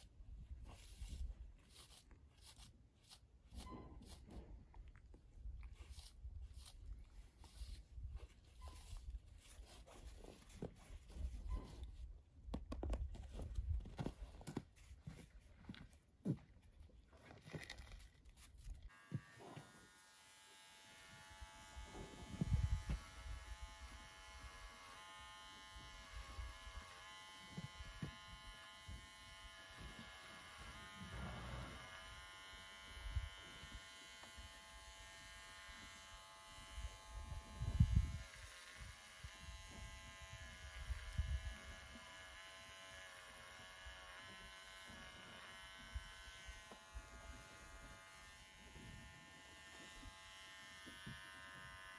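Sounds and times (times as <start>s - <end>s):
electric clippers buzzing: 18.9s - 51.9s.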